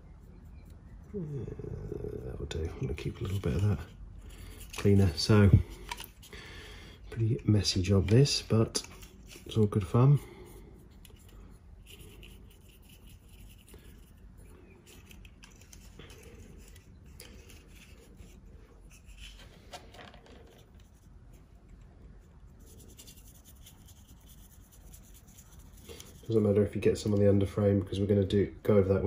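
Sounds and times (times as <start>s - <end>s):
paintbrush scratchy brushing: 1.8s - 5.5s, 7.6s - 19.4s, 20.7s - 26.8s.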